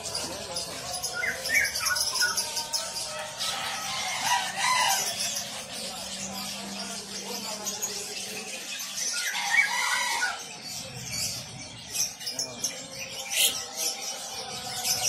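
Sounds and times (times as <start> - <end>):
songbirds chirping and singing: 0.0 - 15.0.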